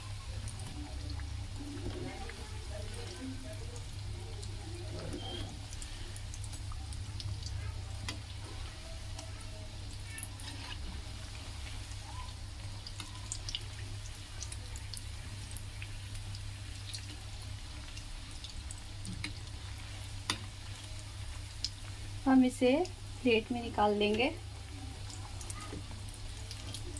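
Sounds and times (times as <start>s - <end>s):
deep-frying sizzle with pops: 0.0s - 26.9s
metal spoon in a pan: 7.7s - 14.6s, 19.0s - 21.8s.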